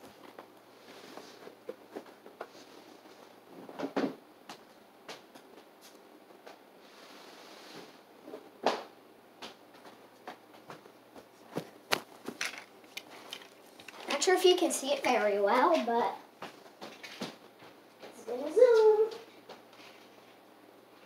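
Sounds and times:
soft rustling: 0.0s - 3.8s.

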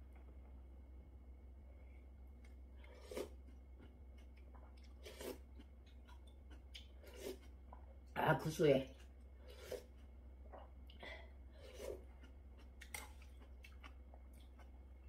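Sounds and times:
faint low hum: 0.0s - 15.0s
slurping broth from a spoon: 2.8s - 3.4s, 5.0s - 5.4s, 7.0s - 7.6s, 9.4s - 10.0s, 11.6s - 12.1s.

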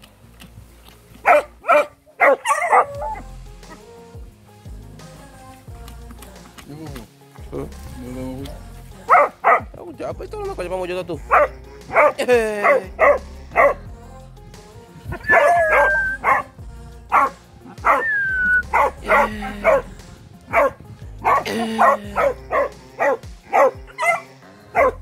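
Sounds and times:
background music: 0.0s - 25.0s
dog barking: 1.2s - 3.3s, 9.1s - 9.7s, 11.2s - 13.8s, 15.1s - 16.5s, 17.1s - 19.9s, 20.5s - 25.0s
dog whining: 1.3s - 3.3s, 15.2s - 16.5s, 17.2s - 19.9s, 20.5s - 25.0s.

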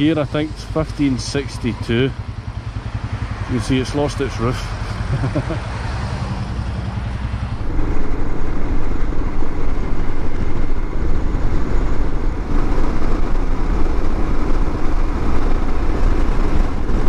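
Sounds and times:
motorcycle engine running: 0.0s - 17.0s
wind on microphone: 7.5s - 17.0s.

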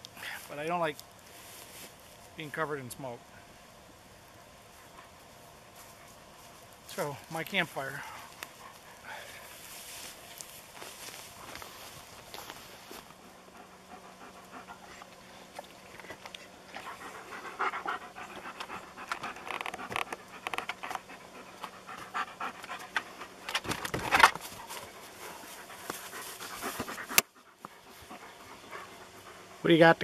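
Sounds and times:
dog panting: 8.0s - 9.6s, 10.9s - 23.5s, 24.5s - 30.0s.

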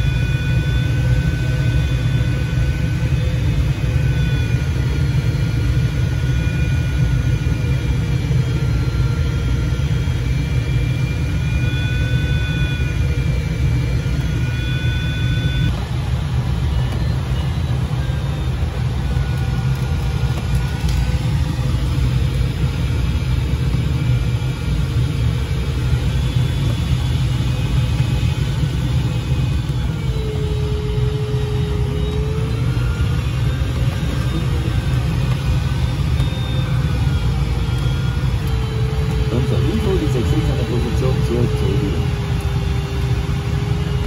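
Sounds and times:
wavering electronic tone: 10.4s - 22.5s, 25.0s - 44.0s.

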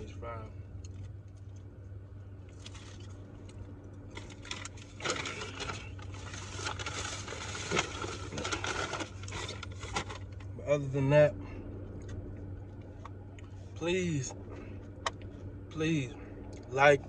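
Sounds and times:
steady low hum: 0.0s - 17.0s
paper bag rustling: 4.1s - 10.4s.

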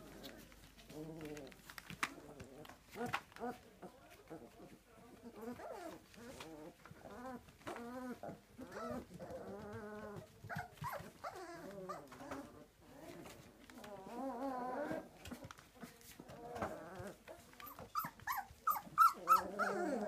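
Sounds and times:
puppies whining: 5.2s - 15.5s, 16.2s - 20.0s.

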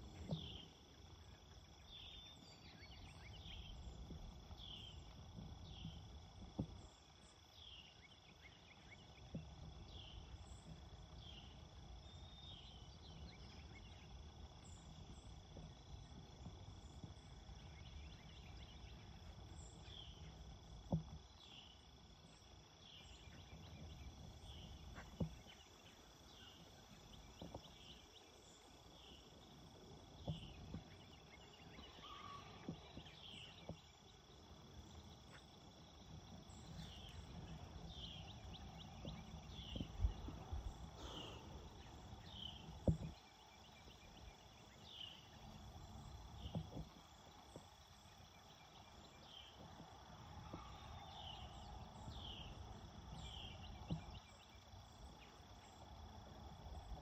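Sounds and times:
birds chirping: 30.2s - 56.1s.

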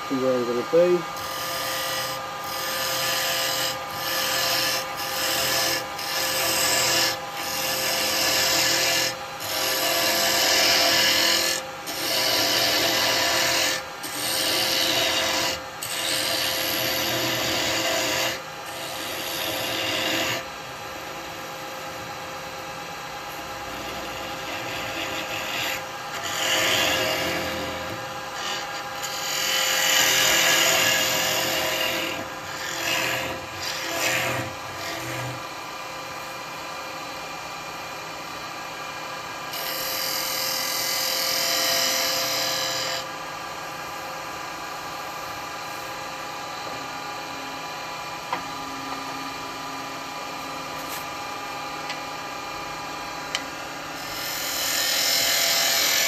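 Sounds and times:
wood lathe motor hum: 0.0s - 36.2s, 38.7s - 43.8s, 46.6s - 56.0s
turning tool scraping wood: 0.1s - 20.4s, 23.8s - 35.4s.

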